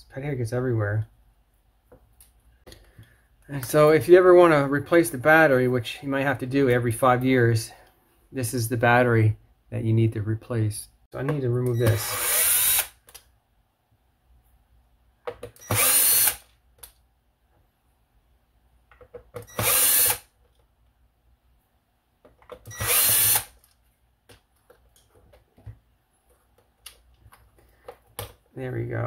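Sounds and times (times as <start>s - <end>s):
power screwdriver motor whine: 11.9s - 12.9s, 15.6s - 16.4s, 19.5s - 20.2s, 22.7s - 23.5s.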